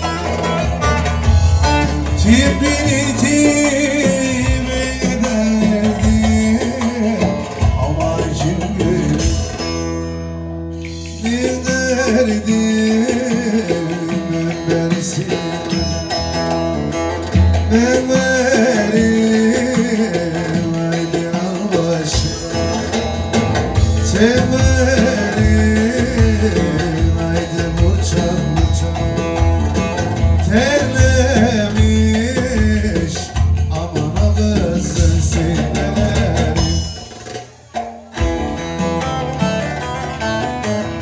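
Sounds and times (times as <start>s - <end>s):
person singing: 0.0s - 9.6s, 10.8s - 16.0s, 17.7s - 23.2s, 23.8s - 29.4s, 30.4s - 36.8s
lutes playing folk dance music: 0.0s - 41.0s.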